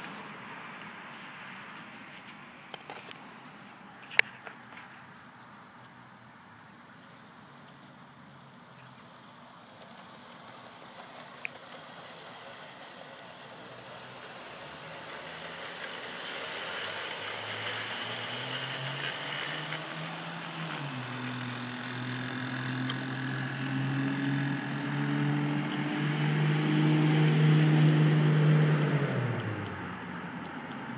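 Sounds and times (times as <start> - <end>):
model train motor hum: 9.2 - 23.6.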